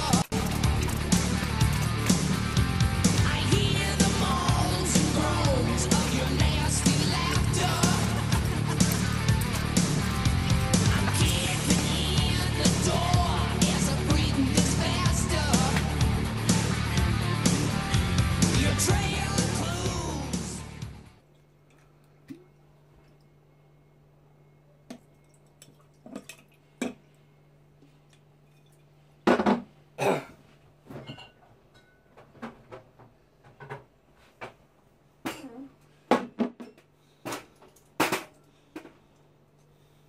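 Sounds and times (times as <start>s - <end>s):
glass bottles clinking: 31.0s - 32.1s.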